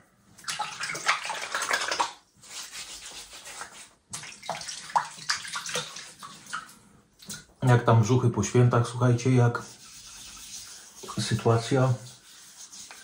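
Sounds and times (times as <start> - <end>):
water splashing at a sink: 0.4 - 7.6.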